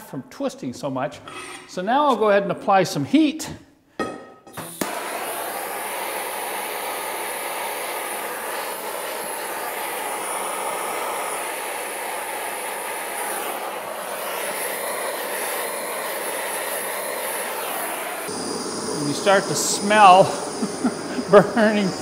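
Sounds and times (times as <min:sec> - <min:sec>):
gas torch hissing: 0:04.4 - 0:22.0.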